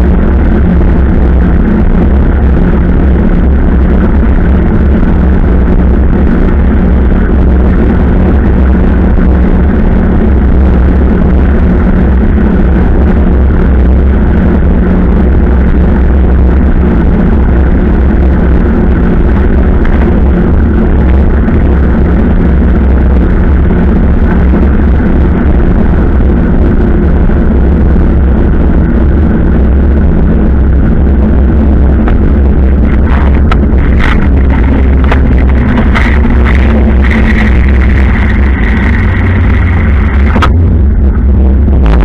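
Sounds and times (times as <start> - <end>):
road noise: 0.0 - 42.0
wind buffeting microphone: 0.0 - 42.0.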